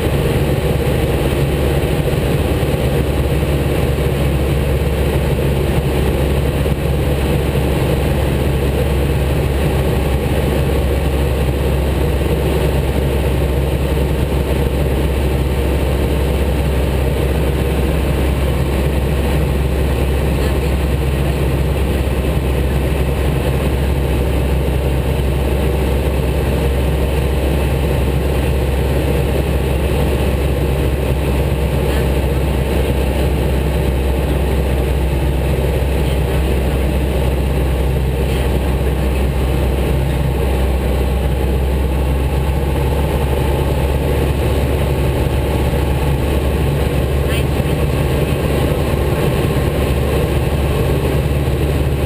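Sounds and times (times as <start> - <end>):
propeller aircraft engine droning: 0.0 - 52.0.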